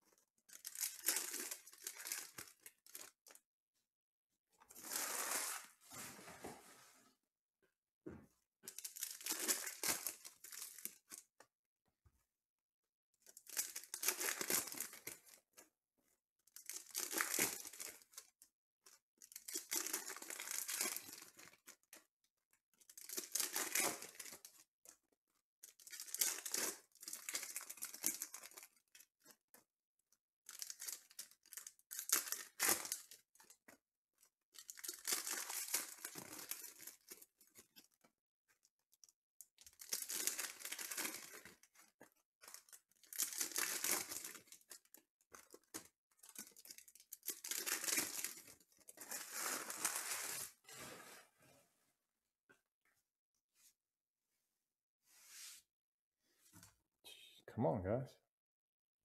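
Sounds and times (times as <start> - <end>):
foil packs tearing and crinkling: 19.3 - 21.5, 22.9 - 24.4, 25.8 - 28.6, 34.6 - 37.2, 39.7 - 41.6, 42.5 - 50.6.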